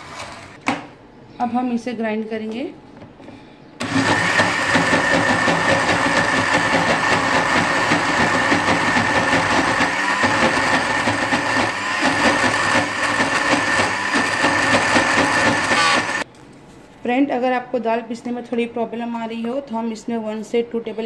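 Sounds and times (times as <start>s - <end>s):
blender motor whining: 3.8s - 16.2s
lentils churning in blender: 3.8s - 16.2s.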